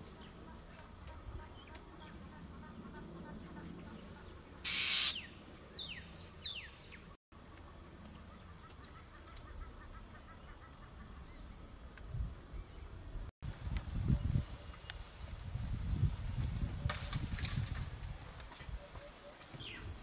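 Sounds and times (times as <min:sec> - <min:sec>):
falling whistled bird calls: 0:04.7 - 0:06.8, 0:19.6 - 0:20.0
high insect drone: 0:07.4 - 0:13.3, 0:19.6 - 0:20.0.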